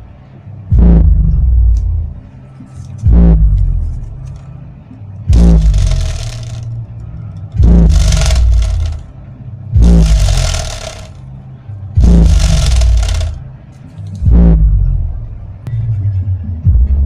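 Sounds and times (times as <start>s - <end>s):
subwoofer deep bass hits: 0.7s - 1.8s, 3.1s - 3.6s, 5.3s - 5.8s, 7.6s - 8.0s, 9.8s - 10.3s, 12.0s - 12.5s, 14.3s - 14.9s
paper flapping and rattling: 5.3s - 6.6s, 7.9s - 9.0s, 10.0s - 11.2s, 12.0s - 13.4s.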